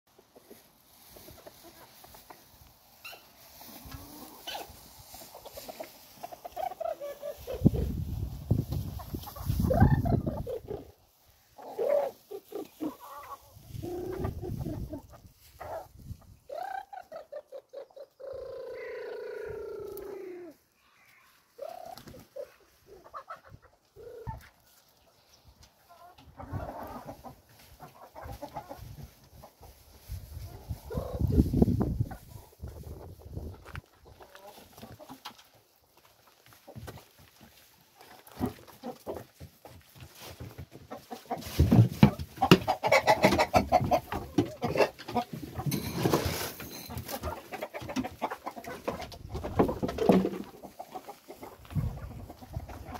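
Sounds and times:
chickens clucking: 0:00.1 - 0:52.9
rustling: 0:00.4 - 0:09.7.

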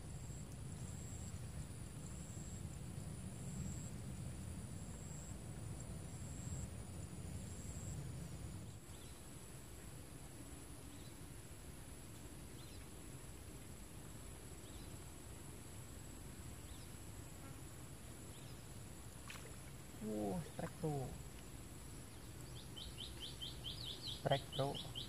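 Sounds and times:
low even hiss: 0:00.0 - 0:25.0
faint bird chirps: 0:22.1 - 0:25.0.

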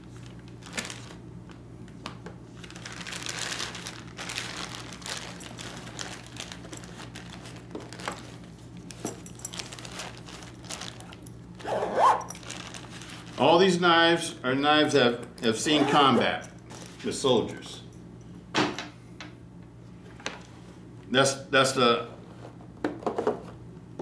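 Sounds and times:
plastic wrapping crinkling: 0:00.0 - 0:13.6.

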